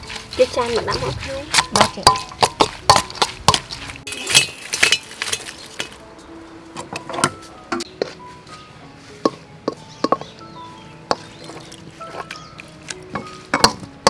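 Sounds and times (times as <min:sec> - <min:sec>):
spoon clinking against metal bowl: 0:00.4 - 0:05.8.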